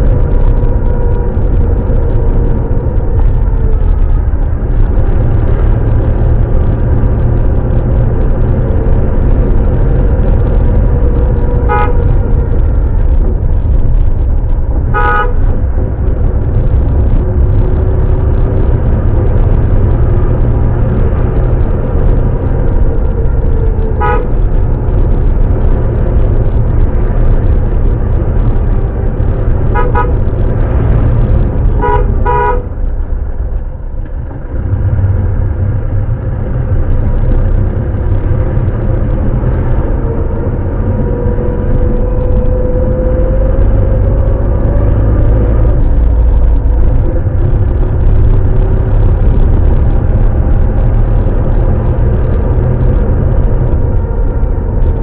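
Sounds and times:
vehicle engine and road rumble: 0:00.0 - 0:55.0
car horn toots: 0:11.5 - 0:12.4, 0:14.9 - 0:15.5, 0:23.9 - 0:24.5, 0:29.7 - 0:30.2, 0:31.7 - 0:32.7.

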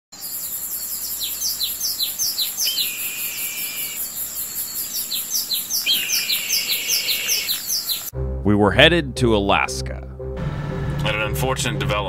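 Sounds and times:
bird whistle: 0:00.2 - 0:08.1
birds chirping: 0:00.2 - 0:08.1
insect trill: 0:00.2 - 0:08.1.

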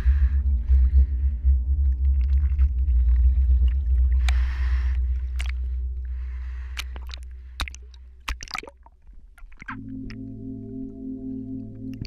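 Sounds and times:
deep rumble: 0:00.0 - 0:08.7
underwater bubbling: 0:00.0 - 0:12.0
water sloshing and splashing: 0:02.0 - 0:10.2
soft music: 0:09.7 - 0:12.0.

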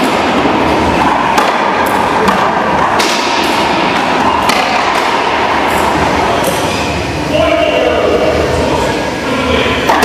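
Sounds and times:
racquetball hitting racquets and walls: 0:00.0 - 0:07.0.

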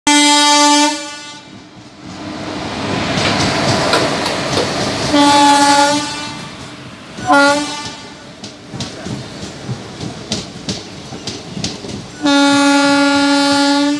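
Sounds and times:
locomotive horn: 0:00.0 - 0:01.6, 0:05.1 - 0:08.3, 0:12.2 - 0:13.9
train rumble and wheel clatter: 0:00.1 - 0:13.9.

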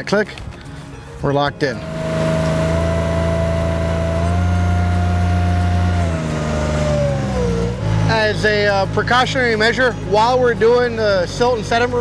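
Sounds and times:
boat engine low hum: 0:01.6 - 0:12.0
hydraulic whine: 0:01.8 - 0:10.1.

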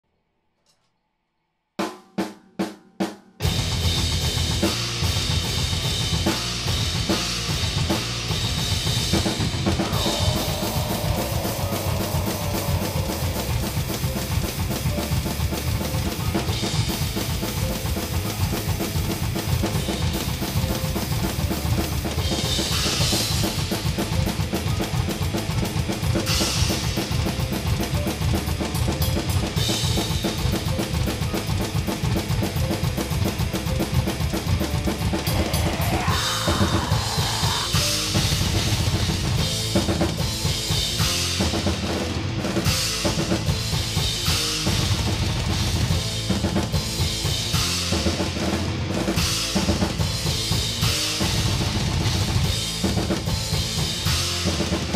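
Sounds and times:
metal drumming: 0:03.4 - 0:41.9
recorded metal song: 0:03.4 - 0:54.9.

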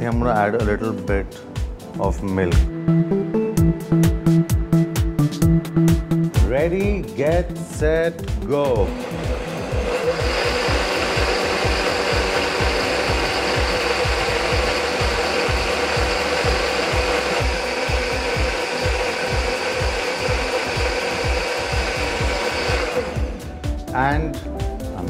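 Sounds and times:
blender motor running: 0:08.7 - 0:23.7.

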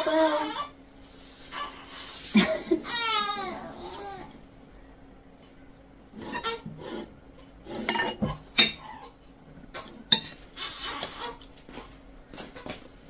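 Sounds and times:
fork clinking on ceramic plate: 0:07.9 - 0:08.9.

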